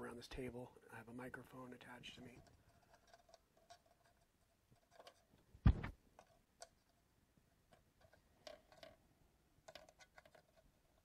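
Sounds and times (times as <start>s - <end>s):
dull thump: 5.6s - 5.9s.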